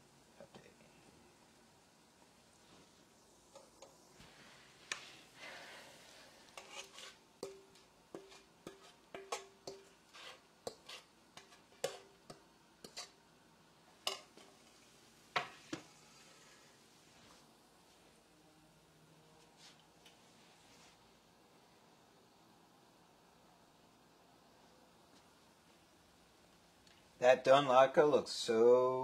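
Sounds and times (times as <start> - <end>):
faint frying sizzle: 0.0 - 22.5.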